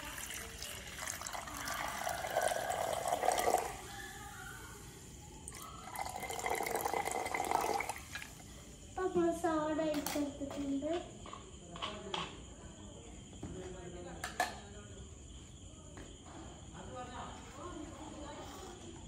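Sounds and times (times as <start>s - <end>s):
soda water pouring into glass: 0.0s - 4.8s, 5.4s - 8.4s.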